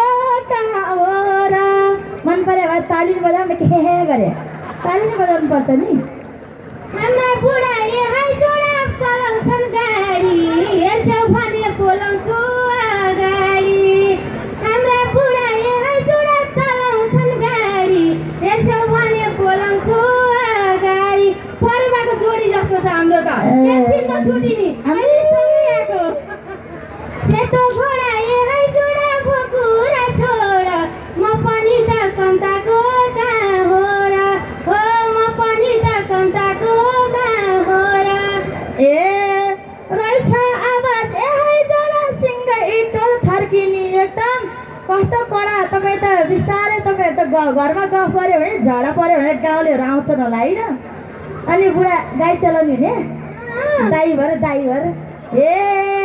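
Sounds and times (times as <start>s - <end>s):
woman singing into a microphone: 0.0s - 3.8s, 7.0s - 26.2s, 27.2s - 48.7s.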